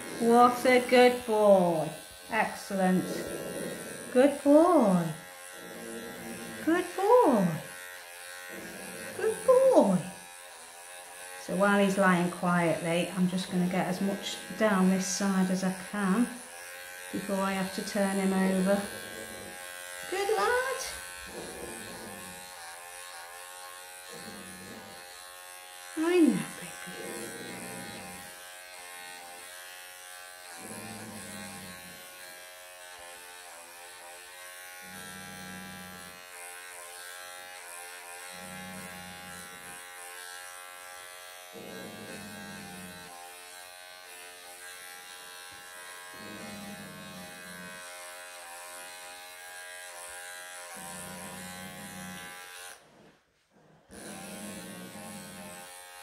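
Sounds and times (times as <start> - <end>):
pet clipper buzzing: 0.0 - 53.2, 53.9 - 56.0
cat growling: 2.7 - 4.2, 5.0 - 7.6, 20.2 - 22.4, 24.0 - 25.0, 26.3 - 28.2, 41.5 - 43.0.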